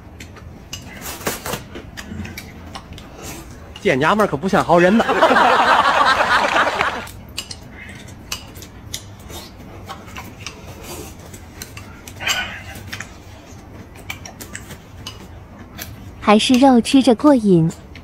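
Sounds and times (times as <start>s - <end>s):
chewing: 1.8s - 3.9s, 7.3s - 16.0s.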